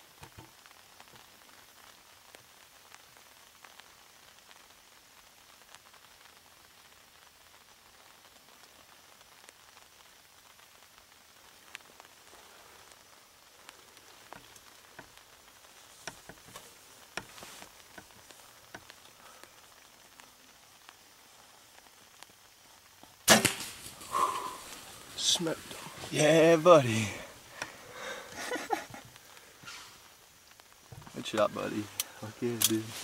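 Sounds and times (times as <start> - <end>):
light rain pattering on leaves: 0.0 - 33.0
bow shot crack: 23.2 - 24.9.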